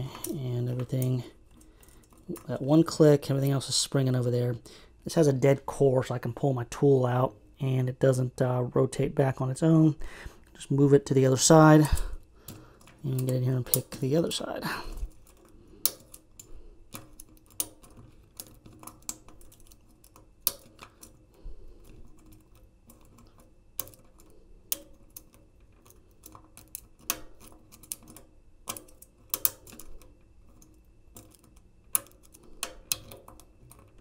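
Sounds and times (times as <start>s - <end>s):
lock pick clicking and scraping: 14.9s - 34.0s.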